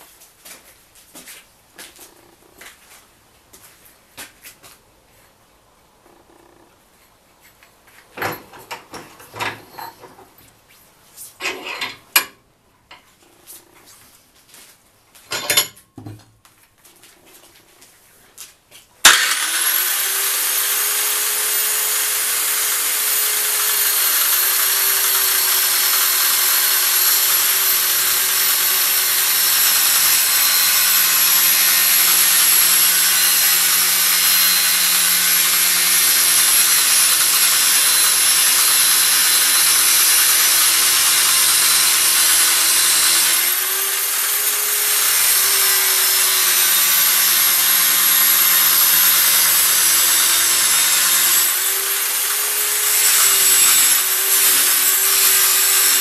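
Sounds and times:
angle grinder cutting steel pipe: 11.4 - 13.0, 15.4 - 15.8, 19.0 - 56.0.

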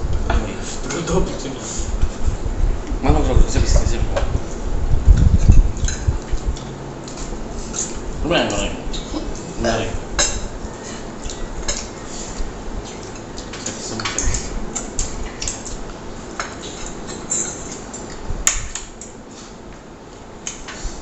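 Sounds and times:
cutlery clinking on plates: 16.4 - 19.1.

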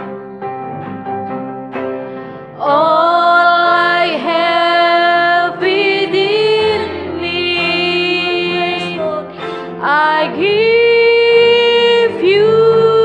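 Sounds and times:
acoustic guitar: 0.0 - 13.0
keyboard: 0.0 - 13.0
low bass note: 0.6 - 1.4, 6.3 - 9.1, 12.3 - 13.0
woman singing: 2.6 - 13.0.

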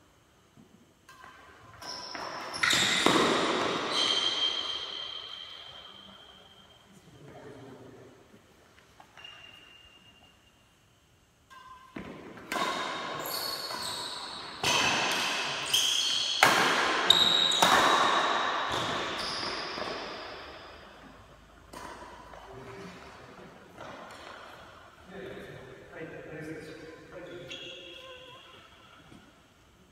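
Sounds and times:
rackets hitting shuttlecock: 1.0 - 6.0, 11.5 - 25.0.

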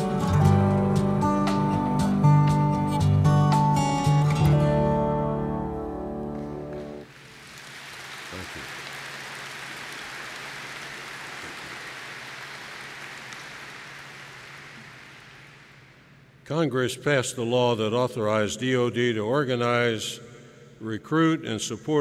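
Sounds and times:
acoustic guitar music: 0.0 - 7.1
audience applauding: 6.4 - 16.1.

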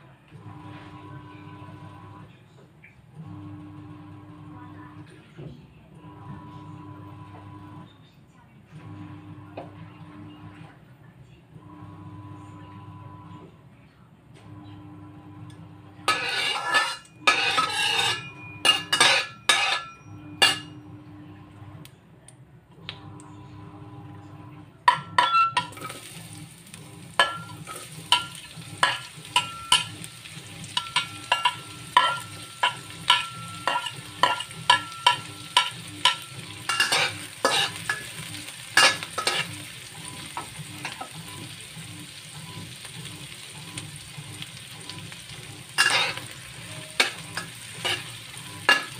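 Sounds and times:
metal spatula scraping pan: 16.0 - 20.8, 27.1 - 41.5, 44.9 - 48.9
onion sizzling in oil: 16.1 - 19.8, 25.6 - 48.9.

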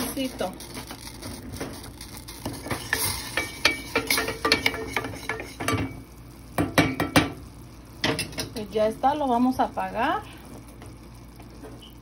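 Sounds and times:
spoon clinking and scraping saucepan: 2.3 - 6.0.

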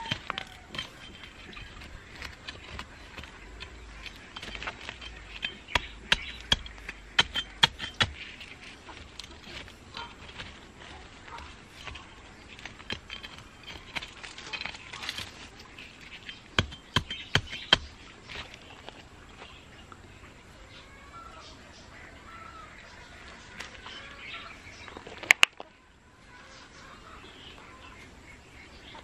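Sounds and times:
metal trowel striking soil: 0.0 - 10.6, 11.3 - 18.6
trowel scraping dry soil: 0.0 - 19.6.

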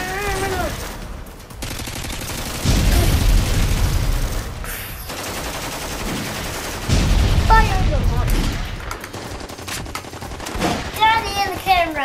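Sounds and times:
rapid machine-gun fire: 0.0 - 12.0
explosion rumble: 2.6 - 4.8, 6.9 - 8.8.

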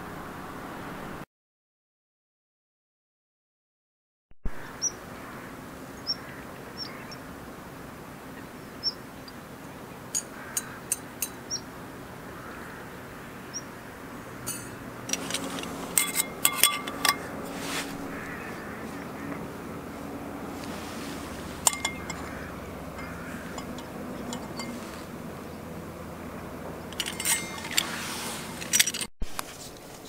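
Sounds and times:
wind: 0.0 - 1.2, 4.4 - 30.0
birds calling: 4.6 - 7.4, 8.2 - 28.8
metallic clinks of cookware: 10.2 - 11.4, 14.5 - 17.3, 21.6 - 22.4, 23.0 - 25.0, 26.9 - 27.8
water noise: 13.1 - 29.4.

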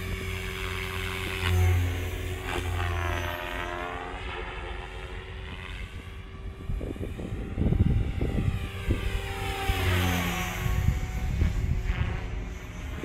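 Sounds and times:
model helicopter motor whine: 0.0 - 13.0
wind buffeting microphone: 6.0 - 13.0.

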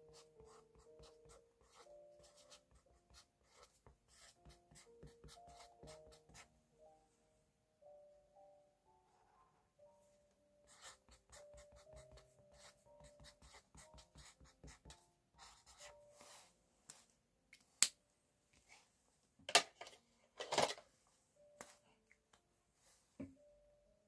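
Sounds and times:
faint background music: 0.0 - 24.0
marker scratching on paper: 0.1 - 6.5, 10.7 - 15.9.

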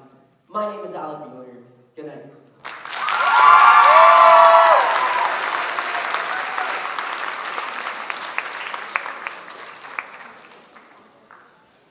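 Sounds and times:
audience applause: 2.6 - 11.8.

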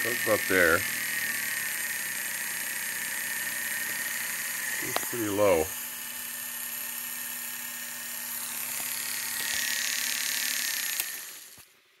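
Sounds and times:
motor whining: 0.0 - 11.7.

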